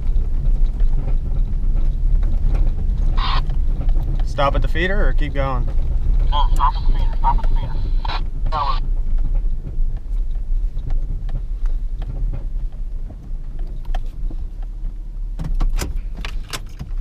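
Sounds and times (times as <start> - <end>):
knocks and rattles: 0.0 - 17.0
truck engine and tyres rumbling: 0.0 - 17.0.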